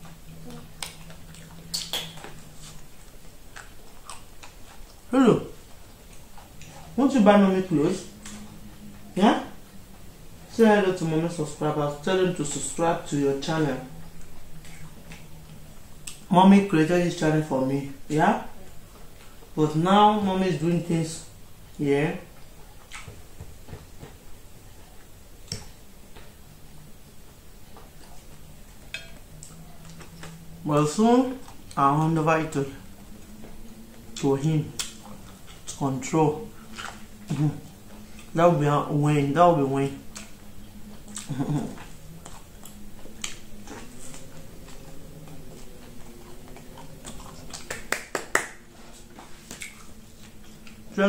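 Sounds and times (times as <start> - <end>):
chewing corn on the cob: 0.0 - 51.0
low steady hum: 0.0 - 51.0.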